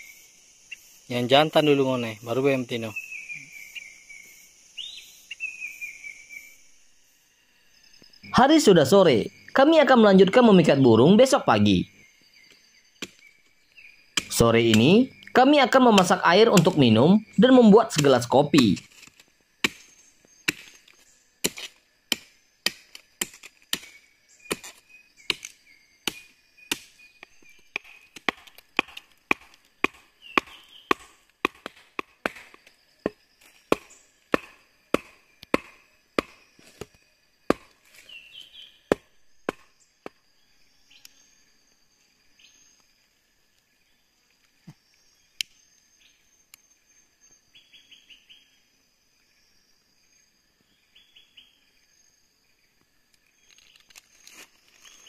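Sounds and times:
forest insects chirring: 0.0 - 55.0
wood being chopped: 14.2 - 15.0, 15.9 - 16.8, 17.9 - 20.8, 21.4 - 37.8, 38.9 - 40.2.

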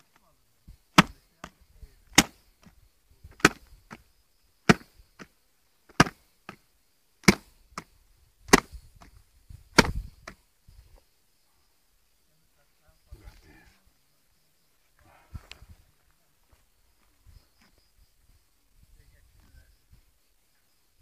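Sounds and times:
sharp knocking blows: 0.9 - 1.5, 2.1 - 2.4, 3.3 - 4.0, 4.7 - 5.3, 5.9 - 6.6, 7.2 - 7.9, 8.5 - 9.1, 9.7 - 10.4.

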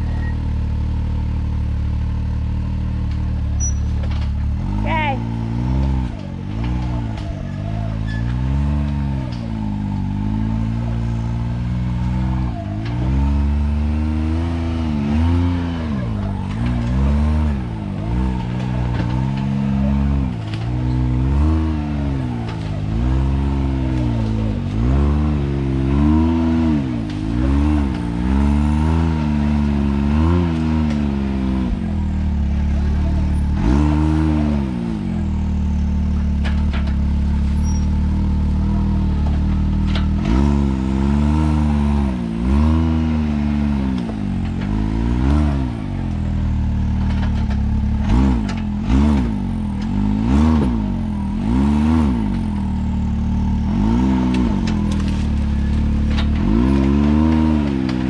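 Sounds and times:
engine revving in short blips: 3.1 - 58.0.

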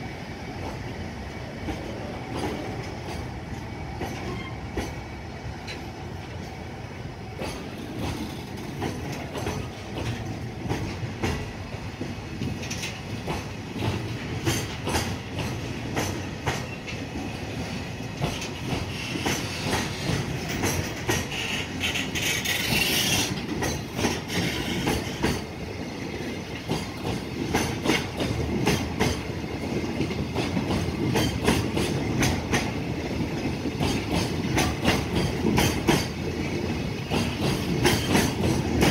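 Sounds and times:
train wheels clattering over rails: 0.4 - 38.9.

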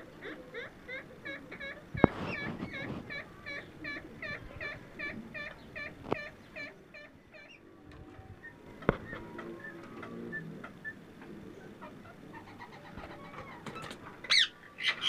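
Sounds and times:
parakeet squawking: 11.8 - 15.0.

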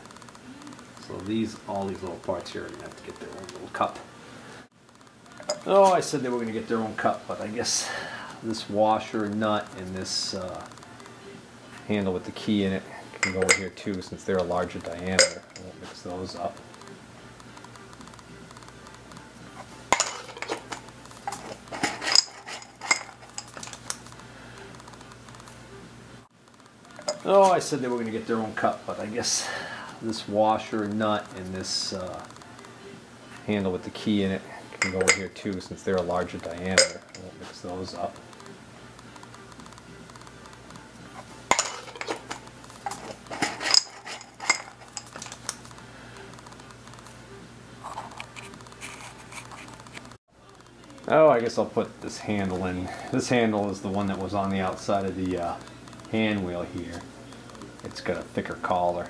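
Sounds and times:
metal parts clinking in glass jar: 13.2 - 13.7, 19.9 - 23.9, 27.0 - 27.3, 34.8 - 35.3, 36.6 - 37.3, 41.5 - 45.5.

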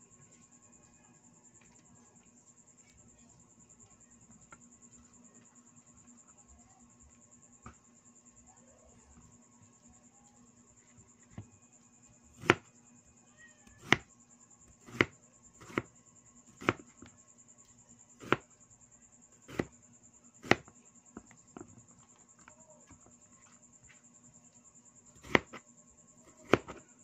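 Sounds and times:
cleaver knocking on cutting board: 13.8 - 14.0.

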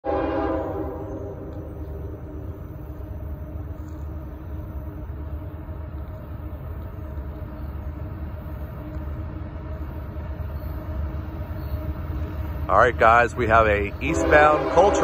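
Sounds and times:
train horn chord: 0.0 - 1.8, 14.0 - 15.0
locomotive engine rumble: 0.0 - 15.0.

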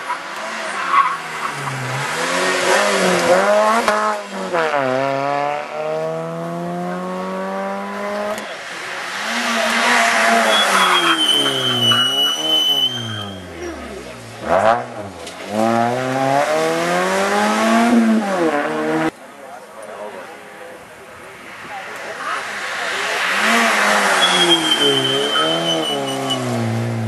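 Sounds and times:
tire squeal: 0.0 - 2.0, 9.1 - 13.9, 22.2 - 26.7
rally car engine revving: 0.3 - 19.2, 21.9 - 27.0.

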